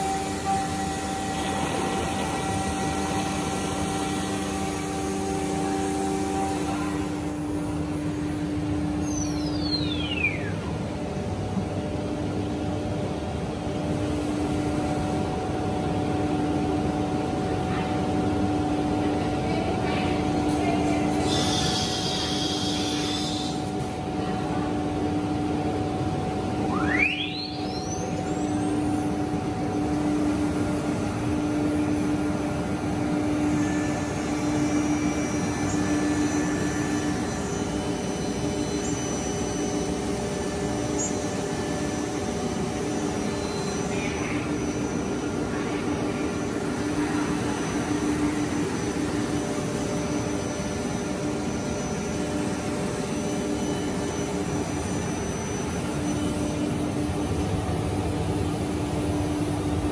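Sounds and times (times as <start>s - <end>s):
router spindle drone: 0.0s - 7.7s.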